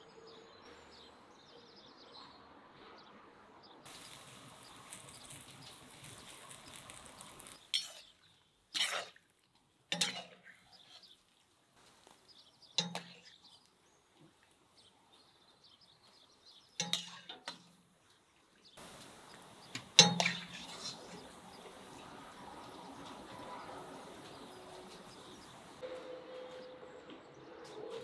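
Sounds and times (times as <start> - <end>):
faint steady hiss: 3.9 - 9.7, 16.9 - 25.8
metal spatula clinking clay bowl: 9.9 - 10.9, 12.8 - 13.4, 16.8 - 17.8, 20.0 - 21.3.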